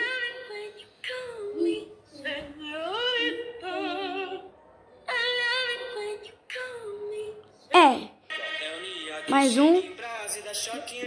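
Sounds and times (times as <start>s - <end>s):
woman singing through phone speaker: 0.0s - 11.0s.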